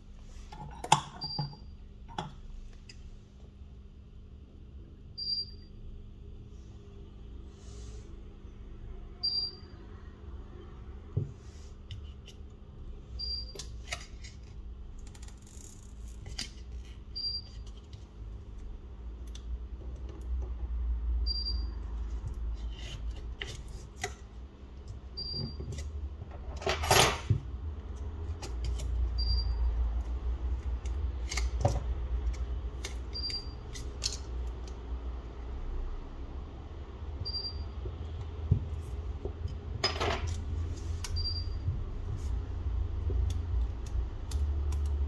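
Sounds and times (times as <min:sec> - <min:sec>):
tools clicking and tapping: 0:30.6 - 0:34.8.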